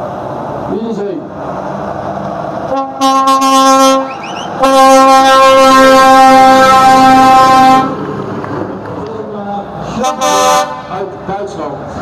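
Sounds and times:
truck air horn blasts: 2.7s - 8.0s, 9.9s - 11.1s.

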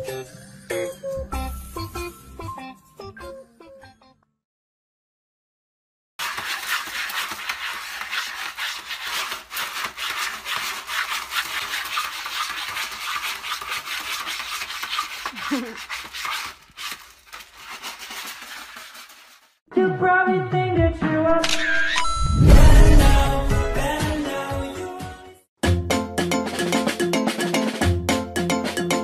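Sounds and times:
cat scratching in pellet litter: 6.2s - 19.6s.

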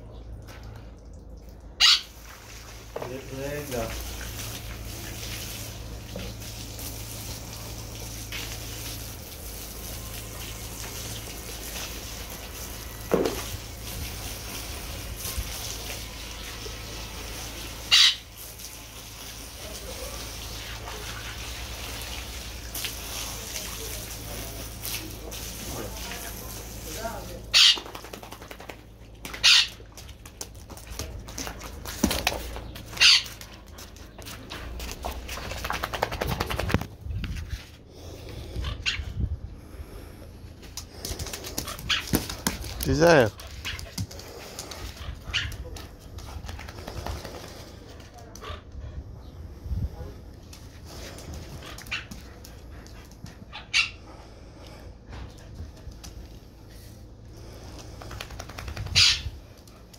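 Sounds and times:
hose water splashing on stone: 0.0s - 36.9s, 40.6s - 47.8s
flip-flops slapping on wet tiles: 22.2s - 37.6s, 40.6s - 48.5s.

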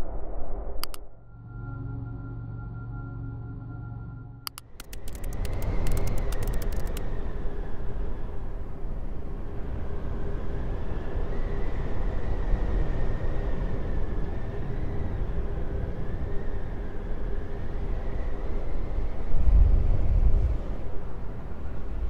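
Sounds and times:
faint wavering high tone: 1.2s - 4.5s.

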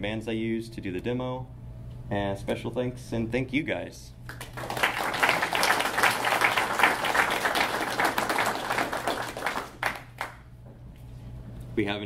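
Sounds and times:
audience applauding: 4.3s - 10.4s.

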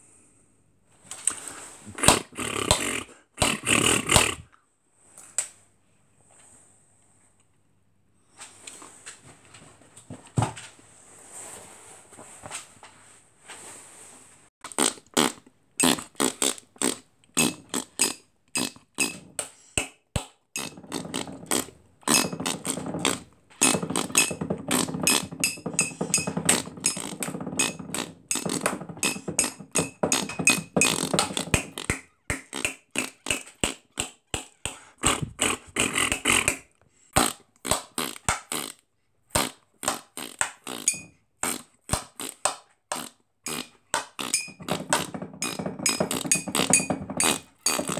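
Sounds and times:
man beatboxing: 2.0s - 4.4s, 14.7s - 19.2s, 20.6s - 25.2s, 26.2s - 36.6s, 37.2s - 38.8s, 39.4s - 47.9s.

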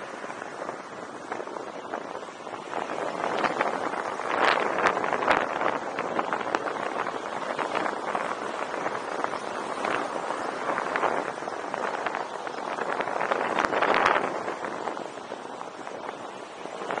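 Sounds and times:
wind on microphone: 0.0s - 17.0s.

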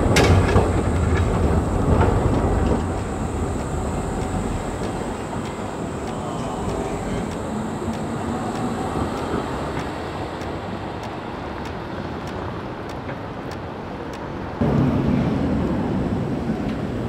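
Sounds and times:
low steady hum: 0.0s - 12.1s
faint regular ticks: 0.0s - 14.3s
tram rumbling on rails: 0.0s - 17.0s.

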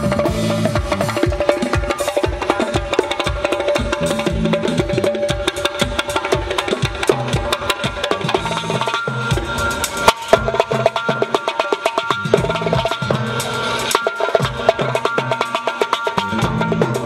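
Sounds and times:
deep bass drum strokes: 0.0s - 5.5s
frame drums playing fast rhythm: 0.0s - 17.0s.

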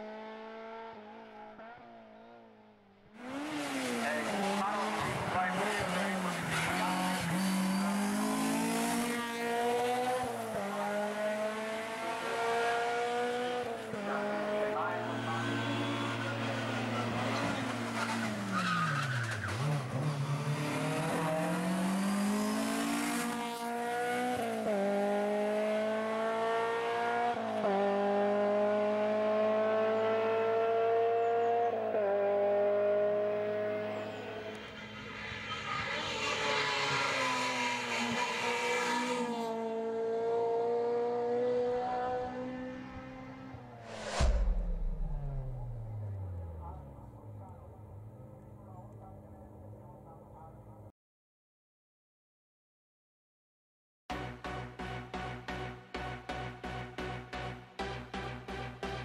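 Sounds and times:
race car engine revving: 3.2s - 49.5s.

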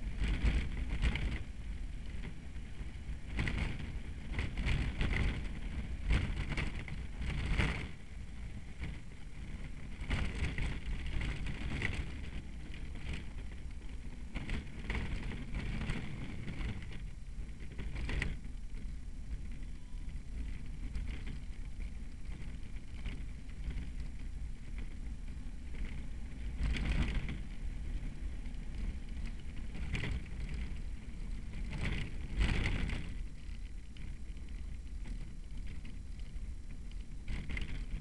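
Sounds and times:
cart body knocking and rattling: 0.0s - 38.0s
cart wheels rumbling on asphalt: 0.0s - 38.0s
wind on microphone: 0.0s - 38.0s.

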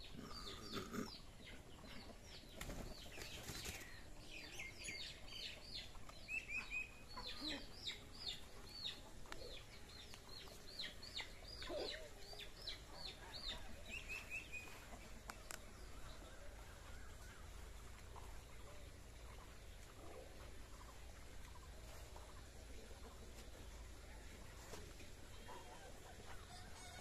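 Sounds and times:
hens clucking: 0.0s - 4.0s
birds chirping: 0.0s - 23.9s.

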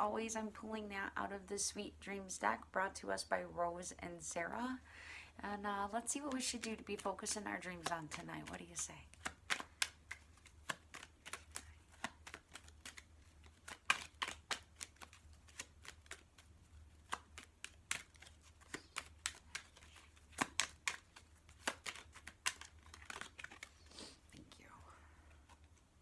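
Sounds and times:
low steady hum: 0.0s - 10.7s, 24.2s - 26.0s
cards being shuffled: 6.2s - 24.5s.

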